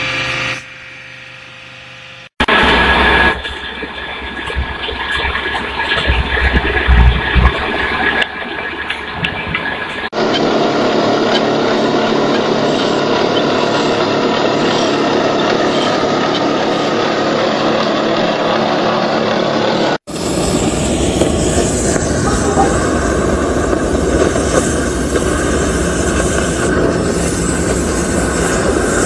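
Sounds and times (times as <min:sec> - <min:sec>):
steel grinding: 0:09.1 - 0:29.0
cutting torch hissing: 0:10.4 - 0:29.0.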